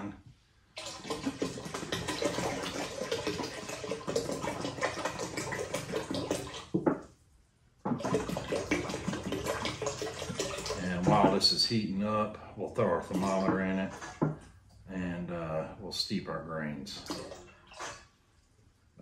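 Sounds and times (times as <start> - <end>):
water pouring into metal pot: 0.8 - 6.8, 7.9 - 11.4.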